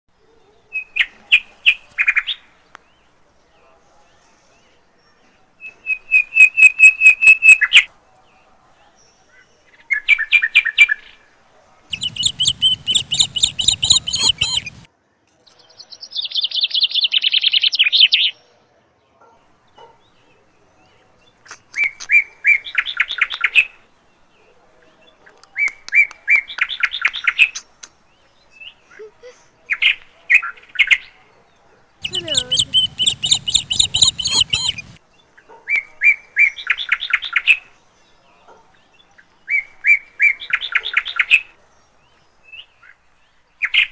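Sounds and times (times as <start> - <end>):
squirrel chirping: 11.9 - 14.9, 32.0 - 35.0.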